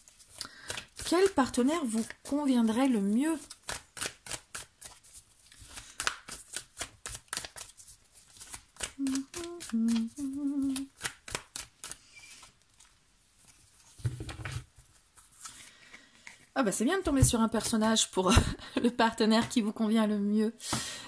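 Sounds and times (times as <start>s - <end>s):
cards being shuffled: 0.0s - 16.5s
person humming: 9.0s - 11.0s.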